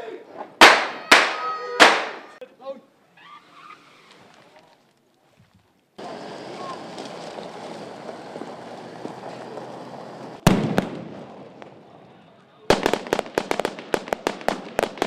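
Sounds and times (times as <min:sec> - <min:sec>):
vehicles driving over gravel: 0:04.1 - 0:10.4.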